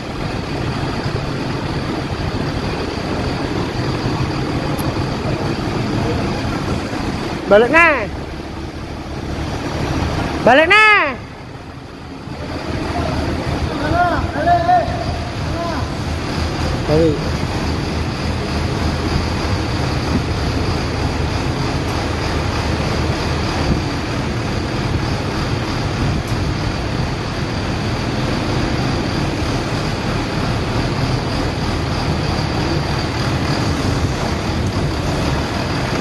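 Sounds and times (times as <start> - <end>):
excavator diesel engine running: 0.0 - 36.0.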